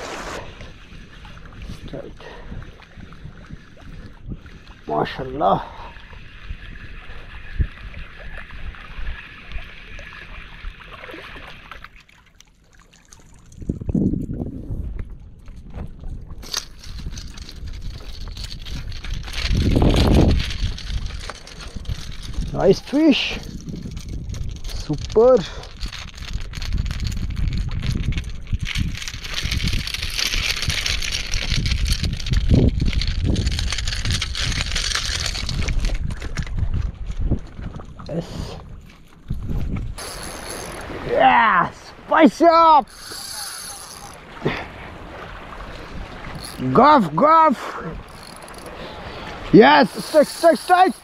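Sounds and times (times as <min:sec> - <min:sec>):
wind buffeting microphone: 0:00.0 - 0:10.8, 0:13.4 - 0:51.0
water lapping against rocky shore: 0:00.0 - 0:51.0
small waves washing against rocks: 0:40.0 - 0:51.0.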